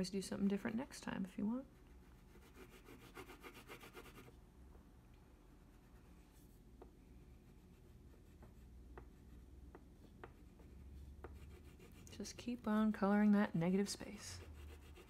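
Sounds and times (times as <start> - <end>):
crayon scratching on paper: 2.1 - 4.3, 10.2 - 15.0.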